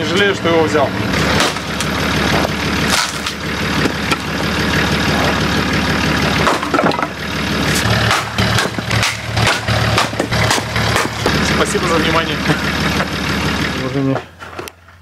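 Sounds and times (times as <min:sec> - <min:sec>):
vehicle engine idling: 0:00.0 - 0:15.0
axe chopping firewood: 0:01.3 - 0:04.4, 0:06.4 - 0:07.1, 0:07.7 - 0:11.4.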